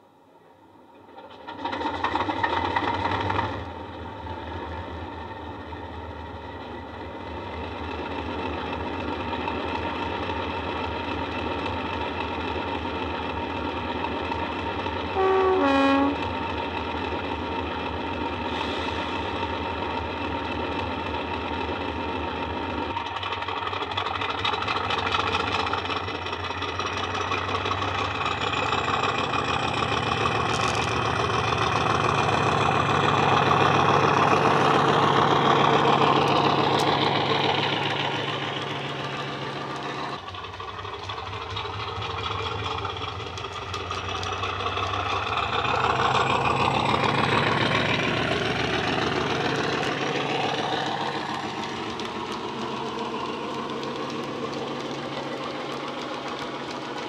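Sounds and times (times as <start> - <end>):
diesel locomotive engine droning: 0.0 - 57.0
locomotive horn blast: 15.2 - 16.3
rising engine whine: 28.1 - 57.0.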